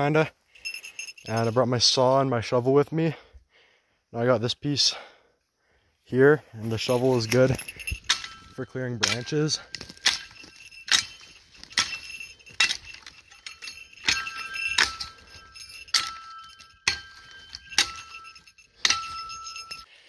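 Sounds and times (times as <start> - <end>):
metal shovel chopping branches: 8.0 - 19.8.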